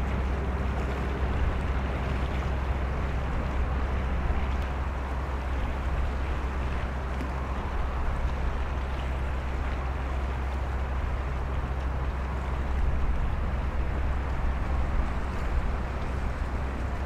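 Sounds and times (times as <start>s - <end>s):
water rushing at bows: 0.0s - 17.0s
wind: 0.0s - 17.0s.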